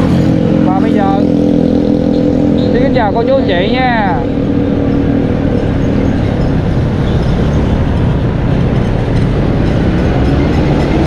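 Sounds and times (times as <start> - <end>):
road and wind noise: 0.0 - 11.0
vehicle engine drone: 0.0 - 11.0.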